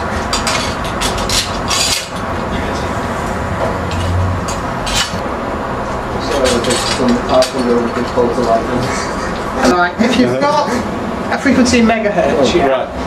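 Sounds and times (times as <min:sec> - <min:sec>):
metal poles clinking and scraping: 0:00.0 - 0:02.8, 0:03.7 - 0:05.2, 0:06.2 - 0:08.9
steady background noise: 0:00.0 - 0:13.0.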